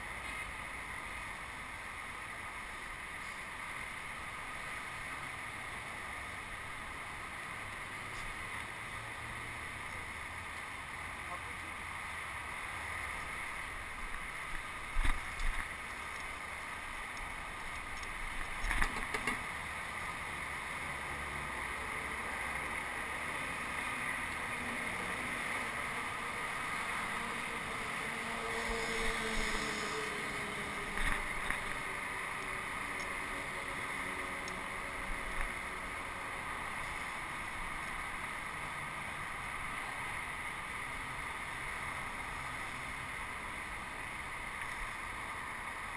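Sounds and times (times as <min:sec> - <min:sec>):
bicycle rolling noise: 0:00.0 - 0:11.0, 0:12.0 - 0:45.9
wind rush: 0:25.0 - 0:33.6.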